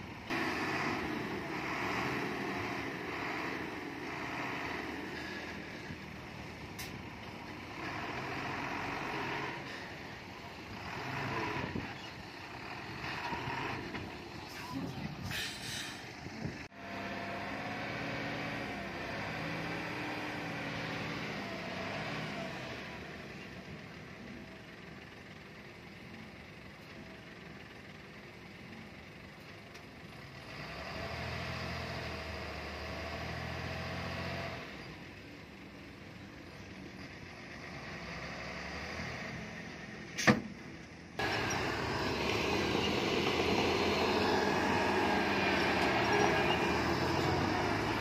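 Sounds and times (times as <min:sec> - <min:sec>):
heavy diesel engines revving: 0:00.0 - 0:48.0
short hiss: 0:15.3 - 0:16.1.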